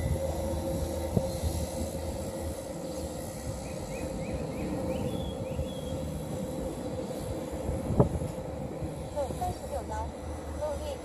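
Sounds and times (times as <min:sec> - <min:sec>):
bird chirping: 0:03.6 - 0:06.1.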